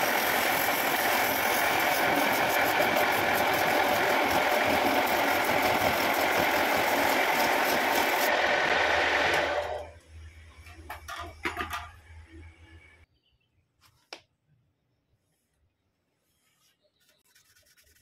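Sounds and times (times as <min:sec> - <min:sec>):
wood lathe running: 0:00.0 - 0:09.9.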